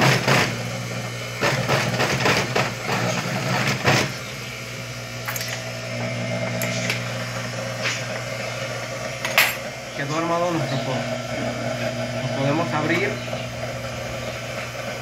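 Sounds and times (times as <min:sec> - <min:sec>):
sewing machine stitching: 0:00.0 - 0:00.6
sewing machine motor hum: 0:00.0 - 0:15.0.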